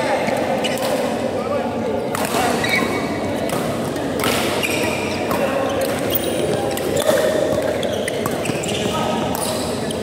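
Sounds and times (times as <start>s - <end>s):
rackets hitting shuttlecock: 2.1s - 9.6s
shoes squeaking on court: 4.5s - 10.0s.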